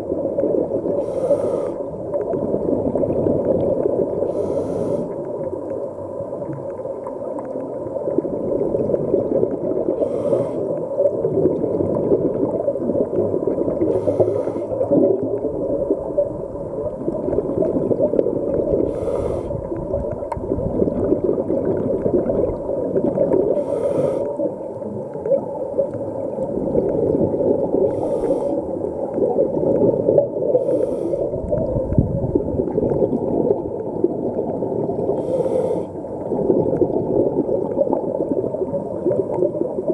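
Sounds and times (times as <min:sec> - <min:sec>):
muffled underwater rumbling: 0:00.0 - 0:39.9
scuba regulator breathing hiss: 0:01.0 - 0:01.9, 0:04.2 - 0:05.2, 0:10.0 - 0:10.8, 0:13.8 - 0:14.8, 0:18.8 - 0:19.6, 0:23.5 - 0:24.5, 0:27.8 - 0:28.8, 0:30.4 - 0:31.4, 0:35.1 - 0:36.0.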